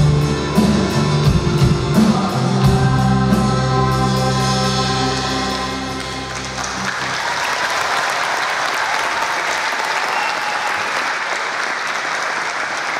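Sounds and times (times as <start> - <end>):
audience applause: 6.0 - 12.9.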